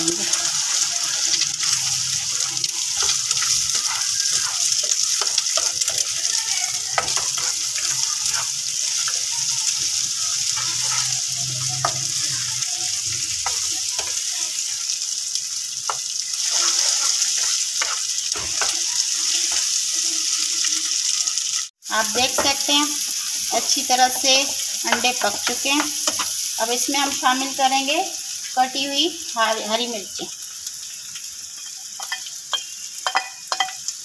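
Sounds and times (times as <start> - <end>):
eggs sizzling in a frying pan: 0.0 - 34.0
spatula scraping a pan: 0.1 - 14.7, 15.9 - 20.2.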